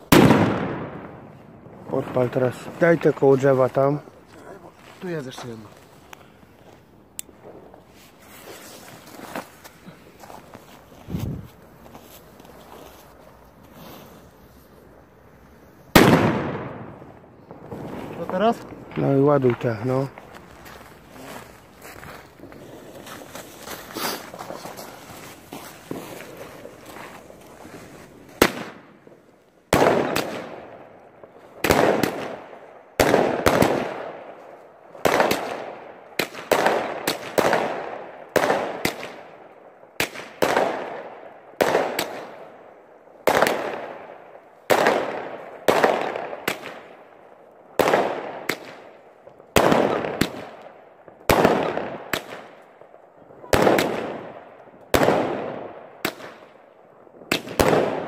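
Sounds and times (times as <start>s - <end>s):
fireworks bangs and crackle: 0.0s - 39.4s, 40.0s - 58.0s.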